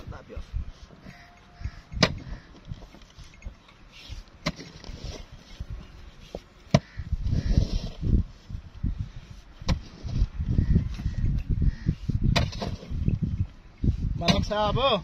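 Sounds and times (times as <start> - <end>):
sand scraping: 2.4 - 14.9
hoe chopping into sand: 4.4 - 5.3, 12.3 - 13.0.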